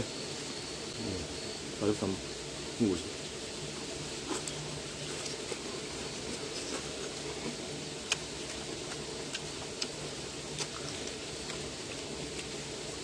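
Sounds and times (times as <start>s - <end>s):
steady background hiss: 0.0s - 13.0s
man chewing: 4.2s - 12.8s.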